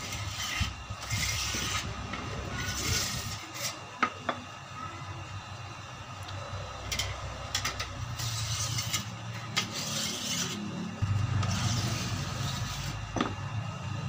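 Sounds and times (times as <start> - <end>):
steady low hum: 0.0 - 14.0
whetstone sharpening steel blade: 8.2 - 10.7.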